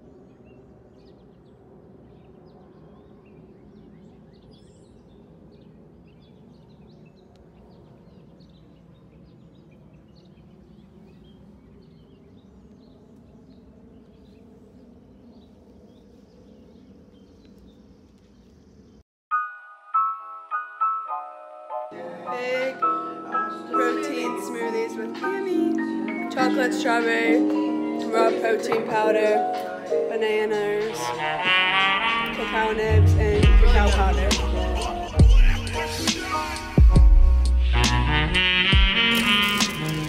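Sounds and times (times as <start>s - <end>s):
birds chirping: 20.5s - 40.0s.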